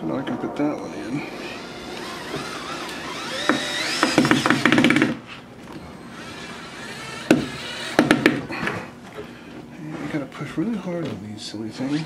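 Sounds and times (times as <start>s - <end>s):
electric screwdriver motor whine: 1.6s - 5.1s, 5.7s - 8.4s.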